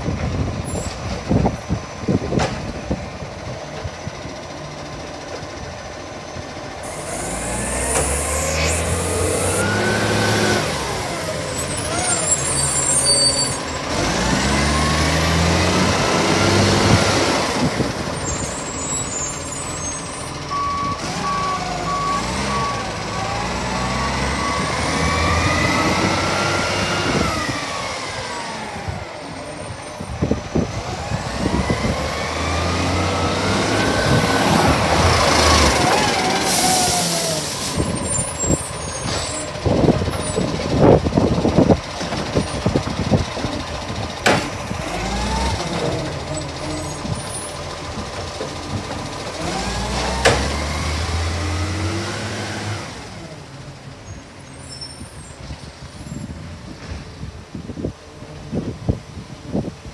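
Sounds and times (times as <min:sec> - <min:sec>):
diesel engine revving: 0:00.0 - 0:59.7
reversing beeper: 0:18.2 - 0:24.9.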